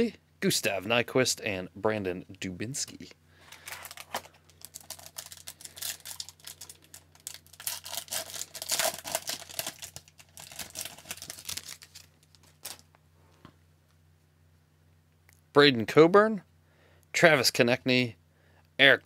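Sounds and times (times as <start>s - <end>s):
foil wrapper tearing and crinkling: 3.6s - 12.9s.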